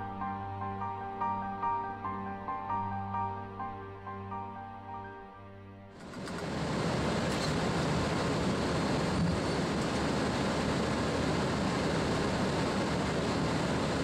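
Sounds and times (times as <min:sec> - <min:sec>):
background music: 0:00.0 - 0:06.2
airliner rushing rumble on runway: 0:06.0 - 0:14.0.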